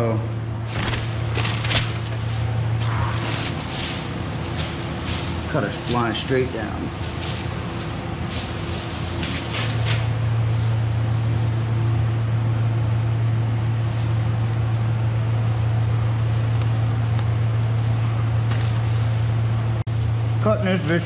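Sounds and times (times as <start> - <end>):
low machine hum: 0.0 - 21.0
plastic sheeting crinkling: 0.7 - 11.9.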